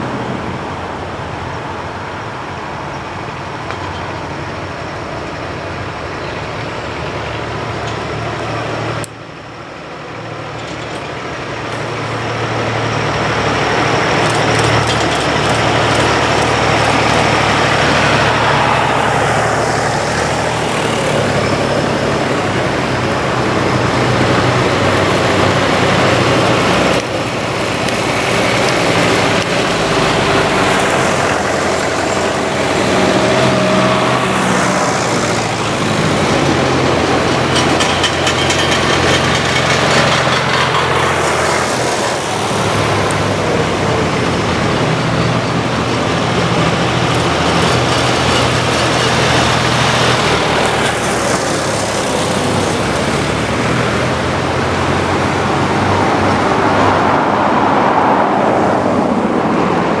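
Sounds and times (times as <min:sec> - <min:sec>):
tractor engines running: 0:00.0 - 1:00.0.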